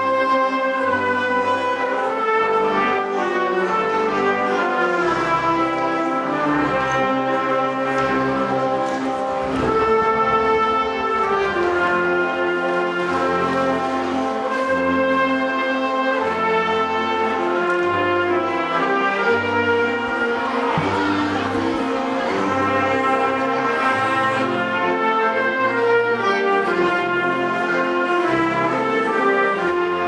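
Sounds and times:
wind band playing: 0.0 - 30.0.

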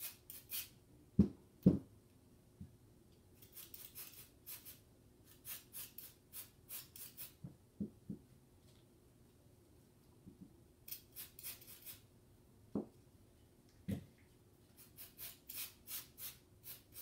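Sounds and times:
spray can hissing bursts: 3.5 - 4.8, 14.8 - 17.0.

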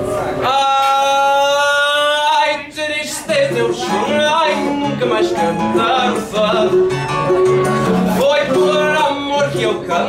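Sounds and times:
guitar plucking bass line: 2.3 - 10.0
mandolin melody: 3.1 - 10.0.

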